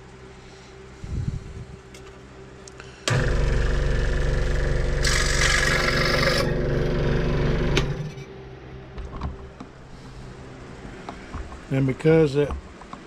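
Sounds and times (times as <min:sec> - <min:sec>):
scroll saw running: 0:03.1 - 0:08.3.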